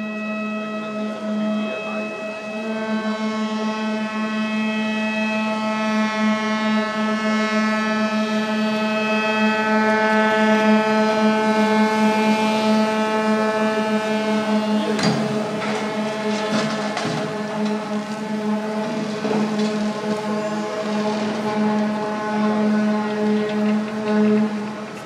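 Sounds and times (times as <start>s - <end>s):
ship's horn blast: 0.0s - 25.0s.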